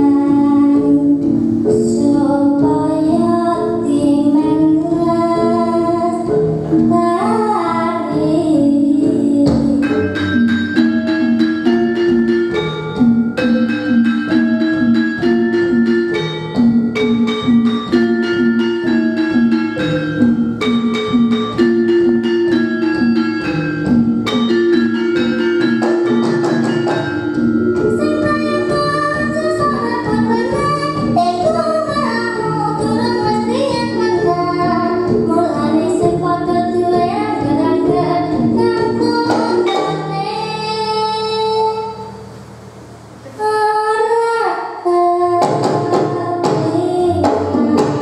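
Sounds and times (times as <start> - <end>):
girl singing: 0.0 - 10.1, 27.6 - 42.2, 43.3 - 48.0
gamelan playing: 0.0 - 43.3.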